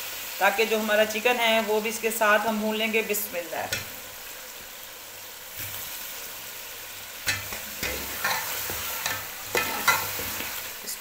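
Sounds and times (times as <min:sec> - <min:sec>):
food sizzling in a pot: 0:00.0 - 0:11.0.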